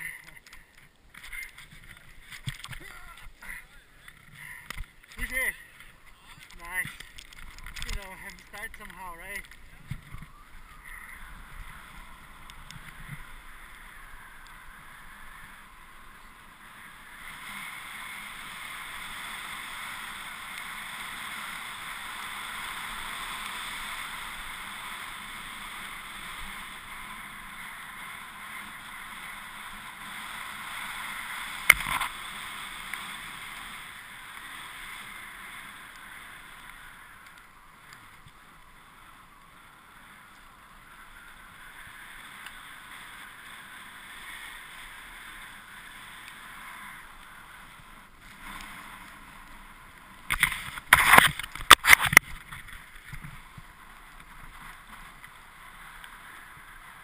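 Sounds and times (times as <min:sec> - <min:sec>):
snowboard scraping on snow: 0:07.8 - 0:57.0.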